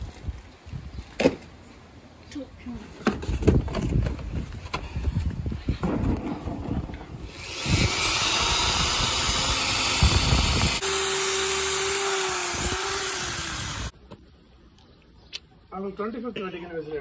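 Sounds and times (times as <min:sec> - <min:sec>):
electric drill boring into brick: 0:07.3 - 0:13.9.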